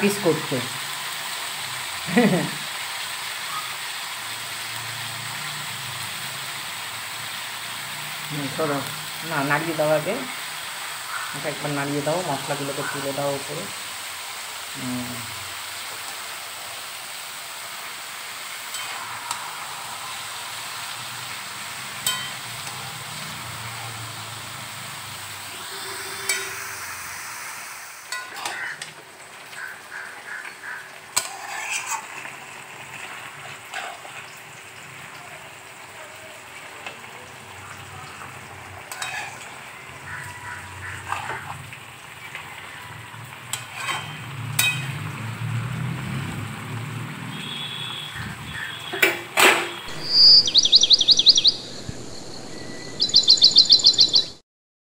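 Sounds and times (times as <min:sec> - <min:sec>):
food sizzling in a wok: 0:00.0 - 0:53.3
metal spatula scraping a pan: 0:18.6 - 0:20.0, 0:22.0 - 0:22.8, 0:25.5 - 0:27.3, 0:28.0 - 0:29.0, 0:30.4 - 0:34.4, 0:38.8 - 0:41.7, 0:42.3 - 0:45.1.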